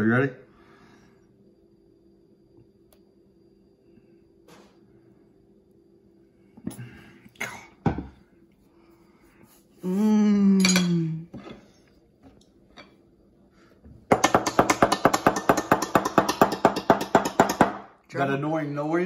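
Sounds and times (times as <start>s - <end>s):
person humming a falling note: 9.8s - 11.3s.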